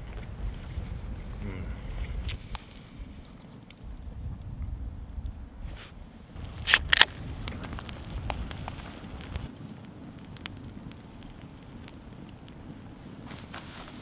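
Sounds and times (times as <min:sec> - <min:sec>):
campfire crackling: 0:00.0 - 0:14.0
beer can cracked open: 0:06.4 - 0:09.4.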